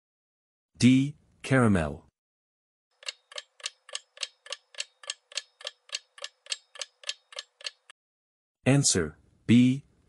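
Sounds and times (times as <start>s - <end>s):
clock ticking: 3.0s - 8.0s.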